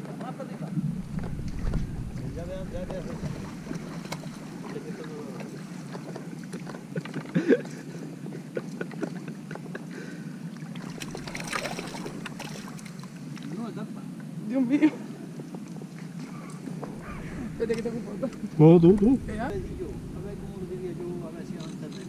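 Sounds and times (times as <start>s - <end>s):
fish splashing at surface: 10.8s - 13.0s.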